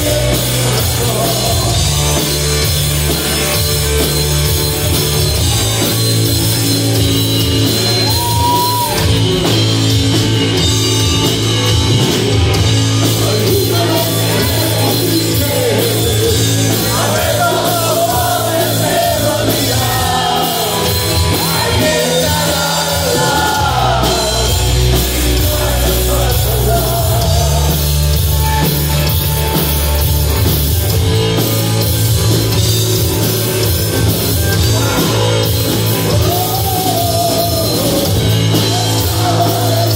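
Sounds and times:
bass guitar: 0.0 - 39.9
distorted electric guitar: 0.0 - 39.9
drums: 0.0 - 39.9
person singing: 13.0 - 28.1, 36.1 - 39.9.

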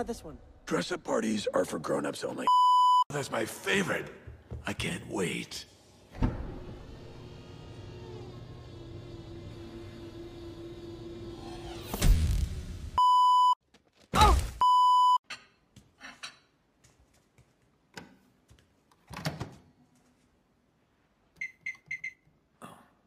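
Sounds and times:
microwave keypad beeps: 2.5 - 3.1, 13.0 - 13.6, 14.6 - 15.2, 21.4 - 22.2.

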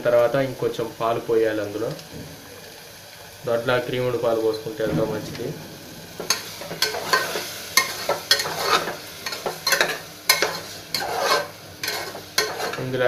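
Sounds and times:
metal spoon scraping a pot: 6.2 - 12.9.

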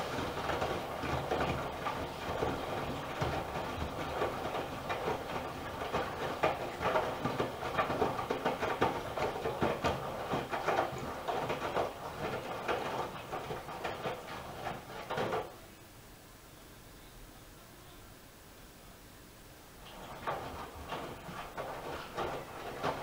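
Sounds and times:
washing machine drum turning: 0.0 - 15.5, 19.8 - 23.0
water sloshing: 19.8 - 23.0.

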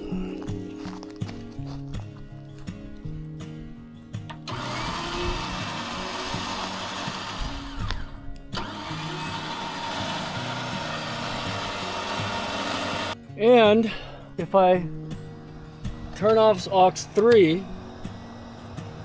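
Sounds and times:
electric winch motor whirring: 4.3 - 13.2, 17.1 - 19.0.

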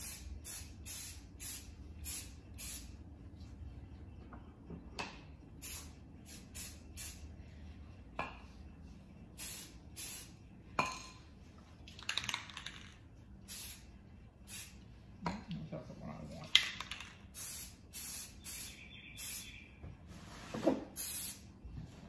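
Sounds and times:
spray paint can hissing: 0.0 - 3.0, 5.6 - 7.2, 9.3 - 10.4, 12.0 - 14.8, 16.7 - 19.5, 21.0 - 21.5.

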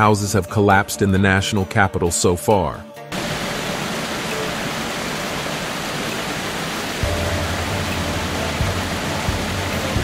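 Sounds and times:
floodwater rushing: 3.1 - 10.0.

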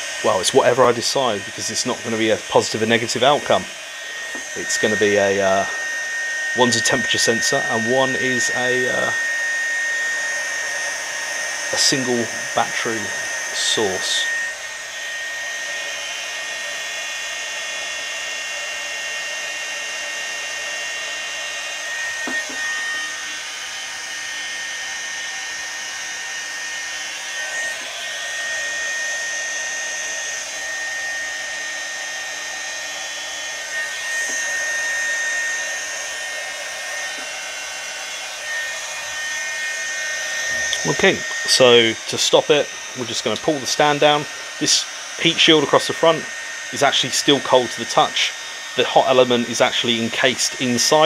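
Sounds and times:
heat gun fan whining: 0.0 - 51.0.

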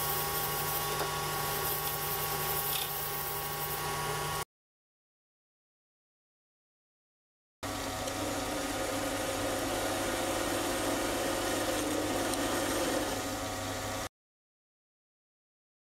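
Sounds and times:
lathe motor humming: 7.7 - 14.1.

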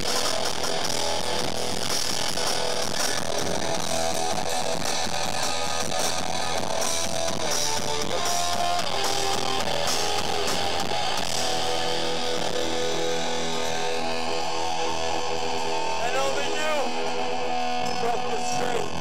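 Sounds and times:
live punk band playing: 0.0 - 19.0.

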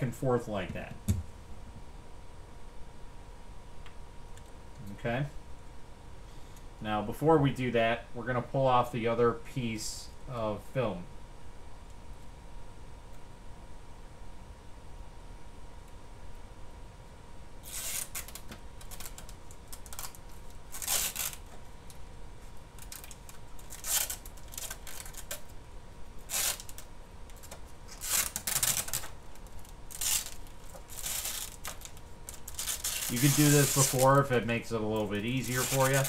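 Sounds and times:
plastic film peeling and crinkling: 17.6 - 25.6, 26.2 - 36.0.

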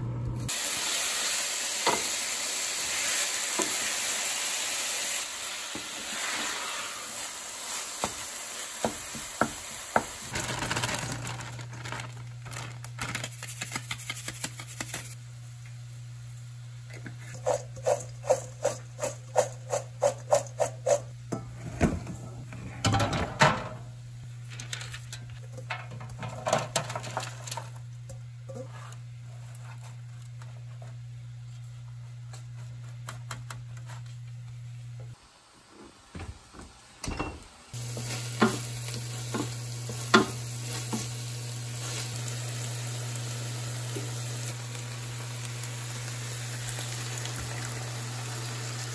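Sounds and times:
meat and onions sizzling in a pan: 0.5 - 10.4, 37.7 - 48.9
kitchen clatter: 17.4 - 23.9, 24.6 - 28.8, 37.0 - 41.1.

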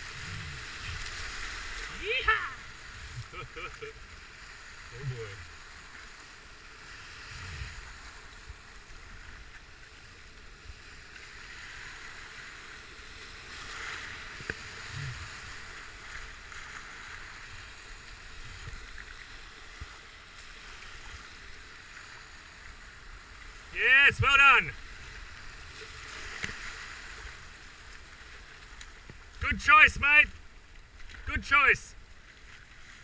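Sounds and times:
rushing river rapids: 0.0 - 5.2.

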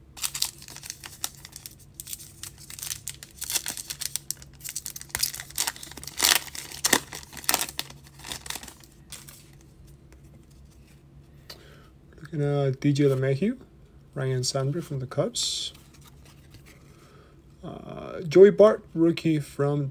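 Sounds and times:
foil wrapper tearing and crinkling: 0.2 - 9.5.

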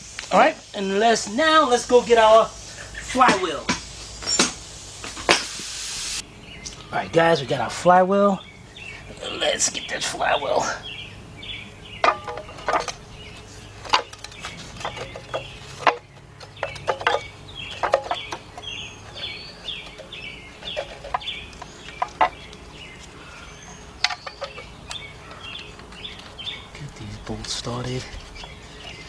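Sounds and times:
bird calling: 6.1 - 29.0
metal clinks and knocks: 12.0 - 22.4, 24.0 - 25.0.

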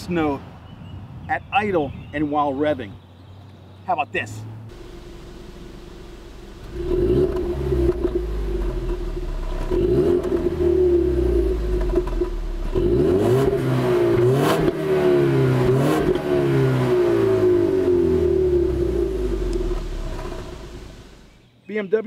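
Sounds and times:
car exhaust revving: 4.6 - 21.4
exhaust cracks: 4.7 - 21.4.

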